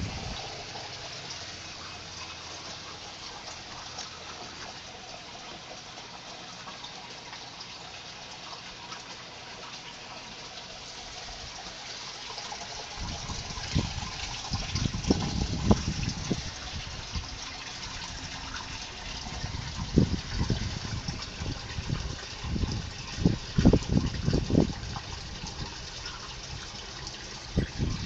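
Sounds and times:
low rumbling thumps: 0.0 - 0.4
water trickling and splashing: 0.0 - 28.0.

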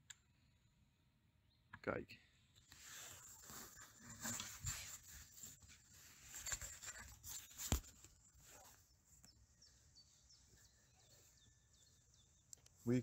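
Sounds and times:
rustling handling noise: 2.7 - 13.0
faint bird chirps: 7.9 - 13.0.

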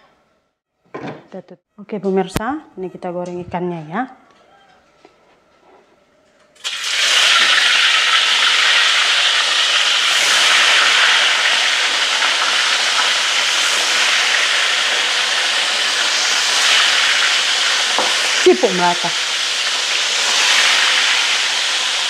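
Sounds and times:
fish frying in hot oil: 6.6 - 22.0.

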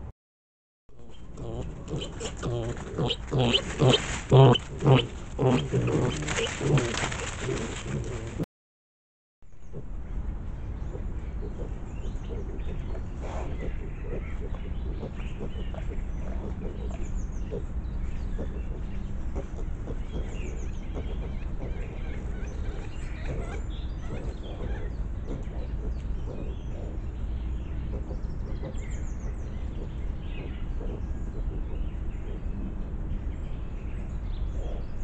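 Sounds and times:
bird chirping: 1.0 - 8.3, 9.5 - 35.0
piglets squeaking: 1.0 - 8.3
rustling in dry leaves: 1.0 - 8.4.

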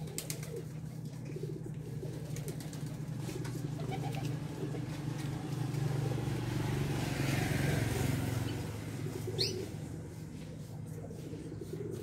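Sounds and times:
vehicle engine passing: 3.0 - 12.0.

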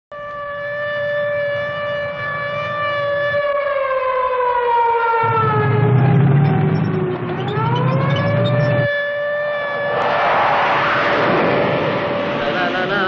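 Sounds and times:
air-raid siren wailing: 0.1 - 13.0
low rumble: 9.7 - 13.0.

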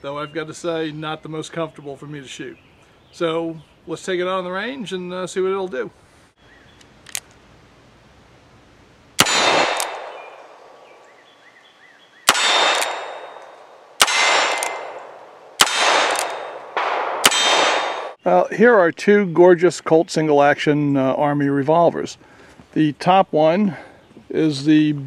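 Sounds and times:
small click: 6.8 - 7.4
revolver shots with echo: 9.2 - 11.0, 12.3 - 18.2.

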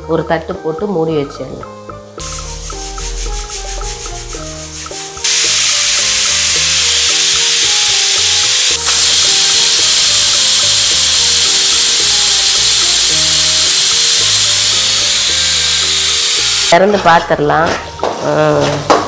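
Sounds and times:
pressure cooker whistle hiss: 5.2 - 16.8.

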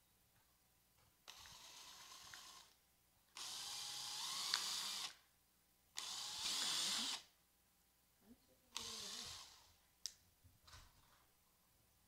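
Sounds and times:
cordless drill boring plastic: 1.3 - 2.8, 3.4 - 5.2, 6.0 - 7.3, 8.7 - 9.7.

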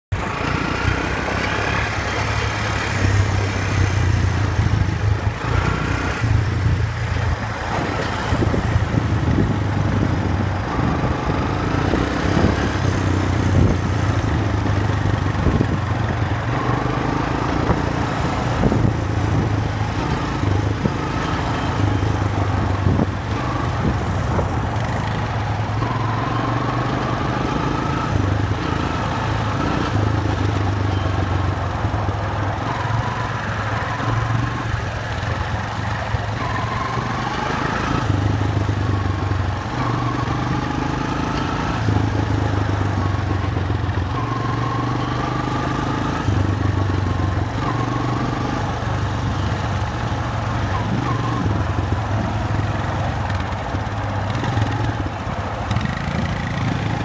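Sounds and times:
quad bike engine revving: 0.2 - 31.8, 36.4 - 57.0.

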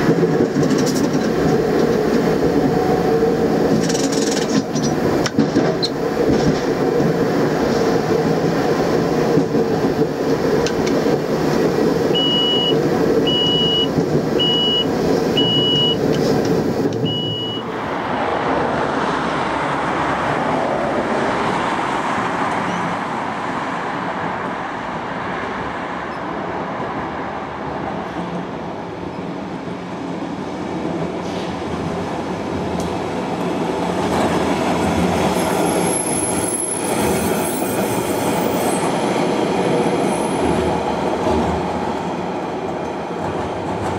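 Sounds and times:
roadside traffic noise: 0.0 - 43.9
tram approaching: 0.0 - 43.9
tram rumbling on track: 0.0 - 43.9
short high beeps: 12.2 - 16.0, 17.0 - 17.6.

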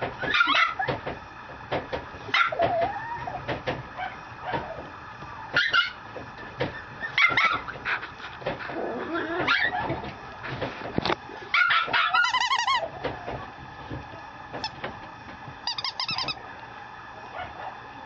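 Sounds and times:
puppy yipping and barking: 0.3 - 0.9, 2.3 - 3.4, 11.5 - 12.9, 15.7 - 16.4.

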